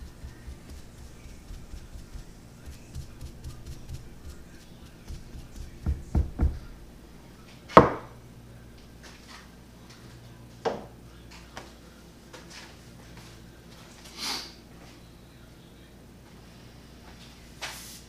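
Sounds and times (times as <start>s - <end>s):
hard object knocking on wood: 5.1s - 6.7s, 7.8s - 8.1s
dull thumps on wood: 5.1s - 6.8s, 7.8s - 8.1s.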